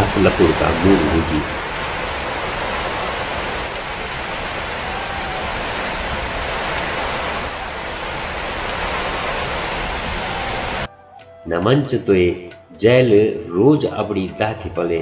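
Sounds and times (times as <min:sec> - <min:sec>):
rain falling: 0:00.0 - 0:10.9.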